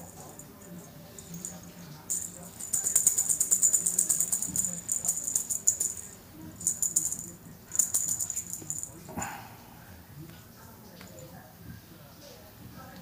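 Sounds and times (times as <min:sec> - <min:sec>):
small bell jingling: 0:00.0 - 0:09.1.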